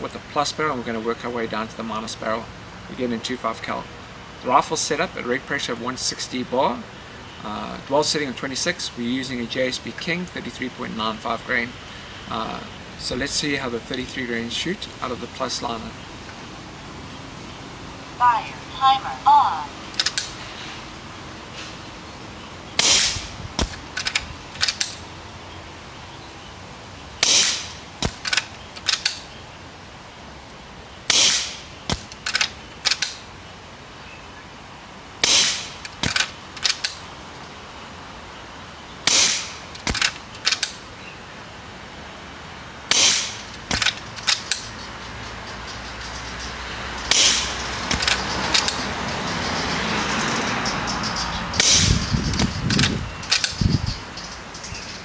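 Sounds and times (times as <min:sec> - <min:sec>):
air rifle shots: 0:22.8 - 0:25.0, 0:27.2 - 0:29.3, 0:31.1 - 0:33.2, 0:35.2 - 0:37.0, 0:39.0 - 0:40.8, 0:42.9 - 0:44.7, 0:47.1 - 0:48.8, 0:51.6 - 0:53.6.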